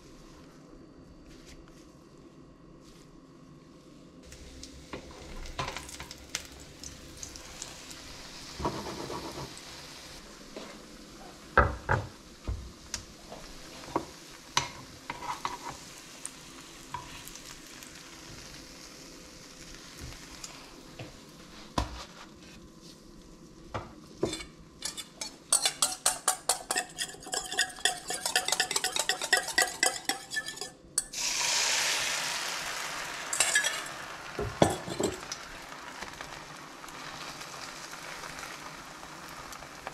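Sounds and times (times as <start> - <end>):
loud sizzle of egg in pan: 4.2 - 39.9
food frying in a pan: 4.3 - 39.9
whisk beating egg in bowl: 24.8 - 30.8.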